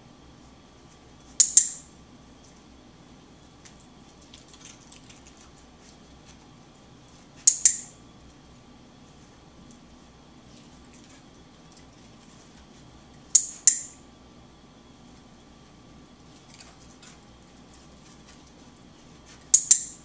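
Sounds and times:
training clicker clicking: 0:07.5 - 0:07.9.

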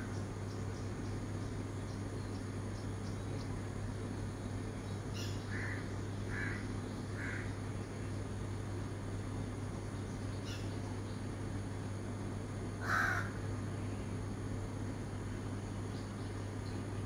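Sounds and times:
small birds chirping: 0:00.0 - 0:12.0, 0:15.1 - 0:17.0
steady low hum: 0:00.0 - 0:17.0
crow calling: 0:05.1 - 0:07.6, 0:10.4 - 0:10.8, 0:12.8 - 0:13.5.

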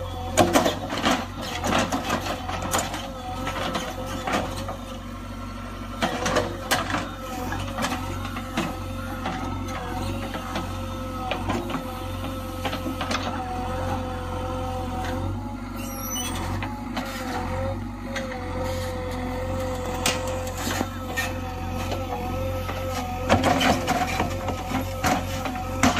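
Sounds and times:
diesel engine whining: 0:00.0 - 0:25.9
backhoe bucket digging soil: 0:00.1 - 0:04.9, 0:15.8 - 0:25.9.

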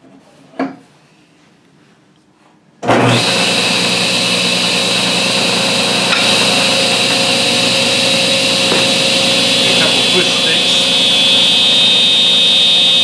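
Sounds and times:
table saw whining: 0:02.9 - 0:13.0.

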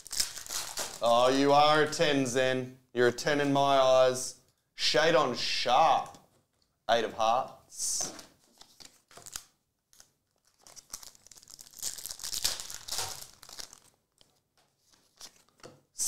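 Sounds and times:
foil pack crinkling: 0:00.0 - 0:01.2, 0:08.4 - 0:15.6.

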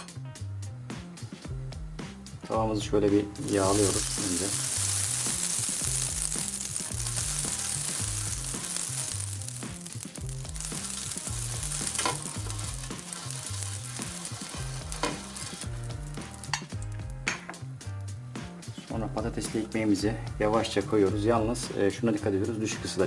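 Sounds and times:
oil sizzling in a frying pan: 0:03.4 - 0:17.7.

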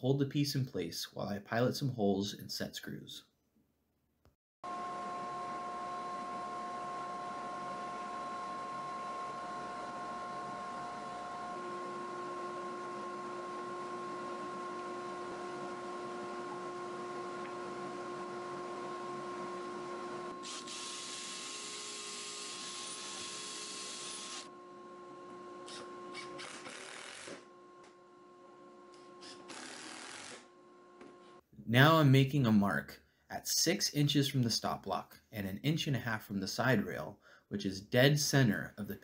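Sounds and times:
steady shop hum: 0:04.6 - 0:34.0
cordless drill boring: 0:20.4 - 0:24.5, 0:25.6 - 0:27.4, 0:29.2 - 0:30.5.

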